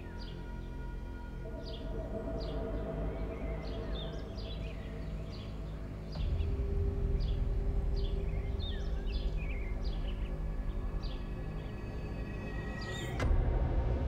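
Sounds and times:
birds chirping: 0.0 - 13.2
low steady drone: 0.0 - 14.0.

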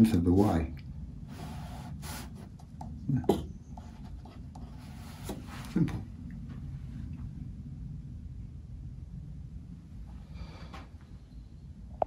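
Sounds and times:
low room hum: 0.0 - 12.0
brush scratching on paper: 1.3 - 2.7, 3.8 - 5.7.

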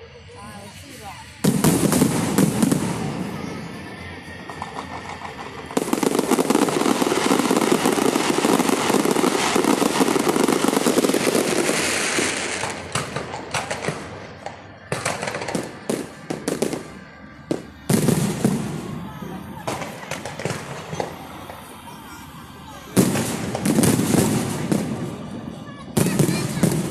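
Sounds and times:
fireworks crackling barrage: 0.0 - 26.9
firework shells bursting: 1.4 - 26.9.

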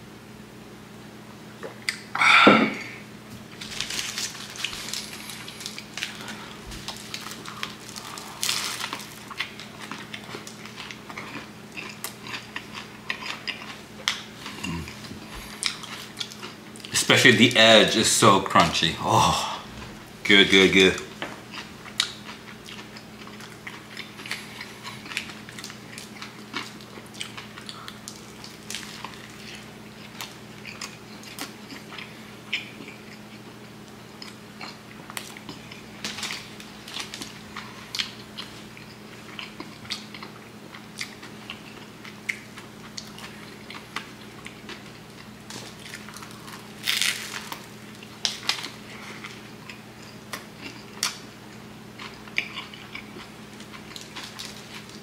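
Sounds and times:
steady low hum: 0.0 - 55.0
chewing and biting bread: 3.5 - 16.9, 21.5 - 55.0
crunchy bites into crusty bread: 45.4 - 49.4.

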